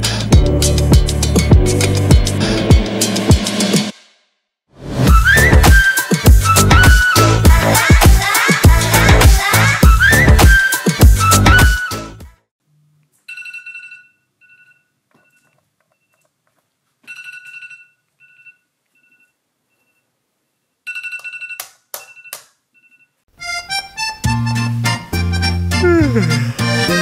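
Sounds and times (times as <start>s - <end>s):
music: 0.0s - 4.2s, 4.9s - 12.5s, 23.4s - 27.0s.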